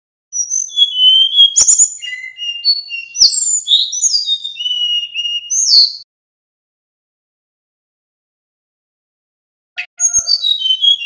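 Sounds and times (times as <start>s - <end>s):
bird singing whistled notes: 0.3s - 6.1s, 9.8s - 11.0s.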